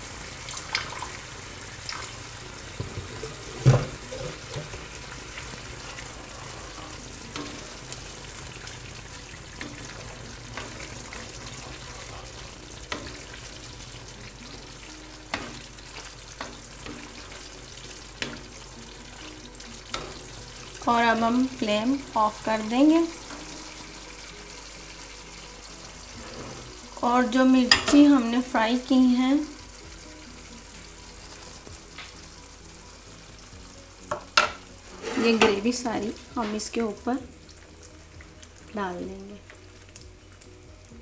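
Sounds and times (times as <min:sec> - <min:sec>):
gravy sizzling in a pan: 0:00.0 - 0:41.0
spatula scraping and knocking pan: 0:02.7 - 0:08.8, 0:34.1 - 0:35.8.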